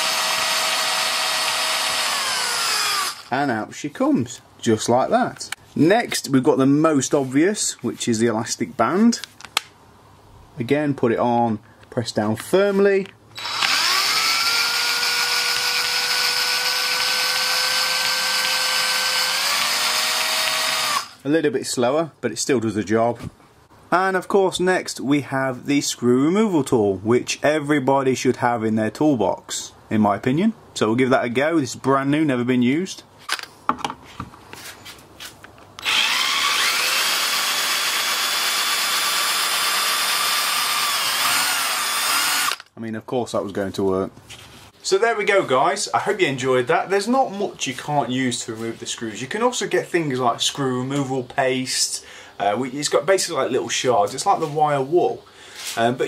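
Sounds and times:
electric drill whining: 0:00.0 - 0:03.3, 0:13.4 - 0:21.2, 0:35.8 - 0:42.7.

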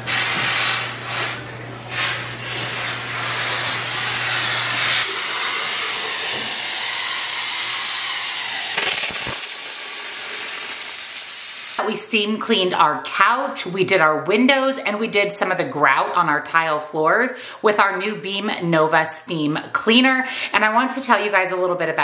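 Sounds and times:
steam cleaner hissing: 0:00.0 - 0:11.8.

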